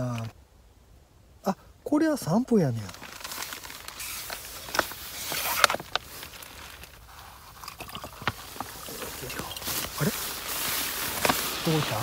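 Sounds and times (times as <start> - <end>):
rustling and handling noises: 2.6 - 12.0.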